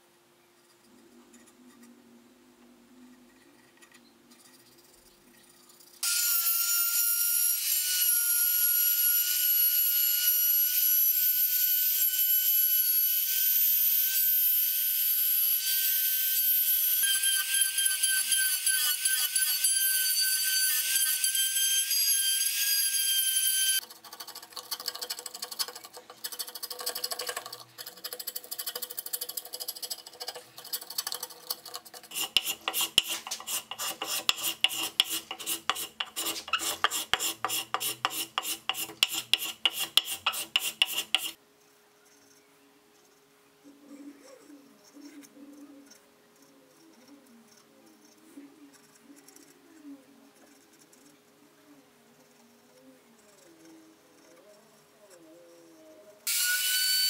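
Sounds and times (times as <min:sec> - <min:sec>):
carving gouge scraping wood: 0:24.0 - 0:41.4.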